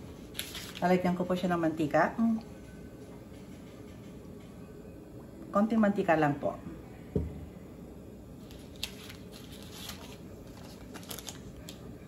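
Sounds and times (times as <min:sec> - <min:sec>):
low background noise: 0:00.0 - 0:12.0
glass bottle thump on counter: 0:07.1 - 0:07.4.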